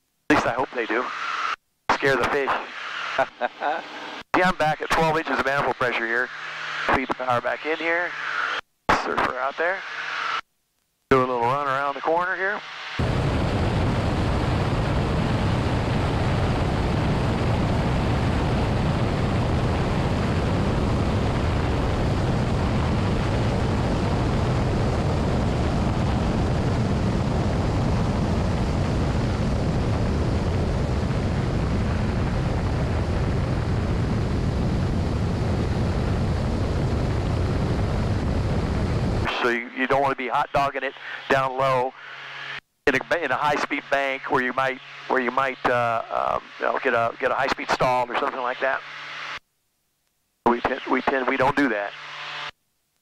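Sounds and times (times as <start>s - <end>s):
aircraft airflow and engine noise: 2.1s - 4.2s, 11.5s - 48.8s.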